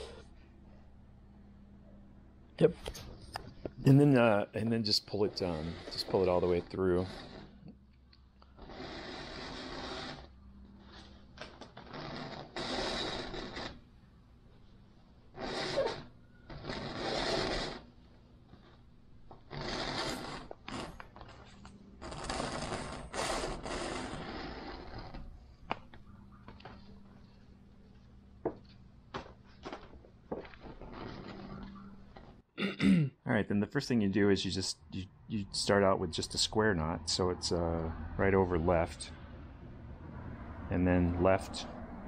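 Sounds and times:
cord rasping through fabric holes: 3.9 - 7.8, 8.4 - 14.0, 15.3 - 26.0, 29.2 - 32.4.

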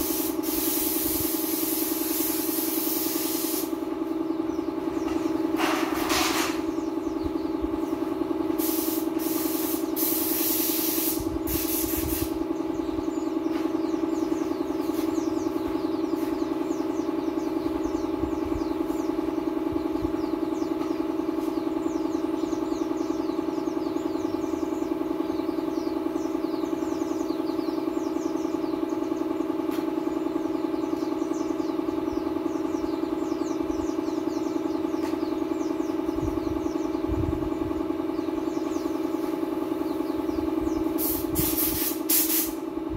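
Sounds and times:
paint spray gun hissing: 0.0 - 3.8, 8.5 - 12.4, 40.9 - 42.6.

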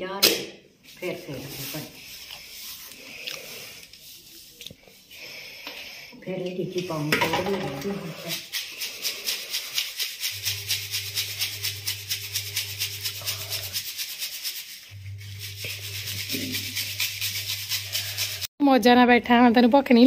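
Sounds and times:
plastic sieve shaking over plate: 7.1 - 18.4.

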